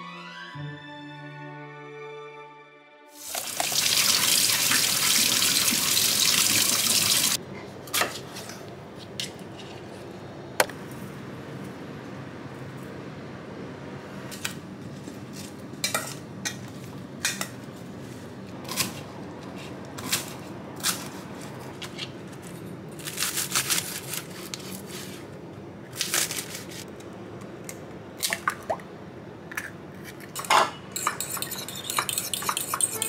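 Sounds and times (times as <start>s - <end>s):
spoon clinking in steel bowl: 30.4s - 33.0s.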